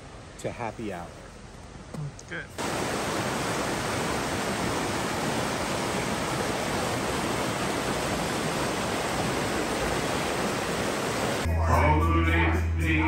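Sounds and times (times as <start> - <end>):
creek rushing over stones: 2.6 - 11.5.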